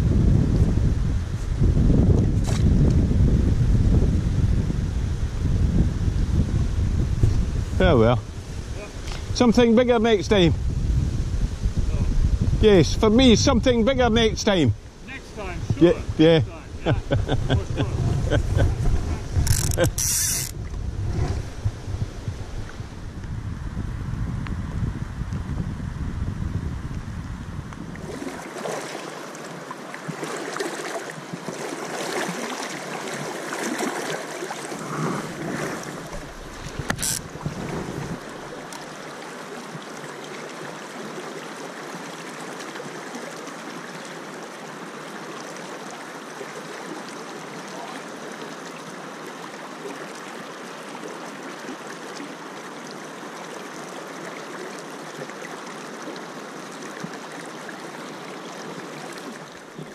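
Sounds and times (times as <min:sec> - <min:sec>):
wind buffeting microphone: 0:00.0 - 0:28.3, 0:34.8 - 0:38.6
river water rushing: 0:28.0 - 0:59.9.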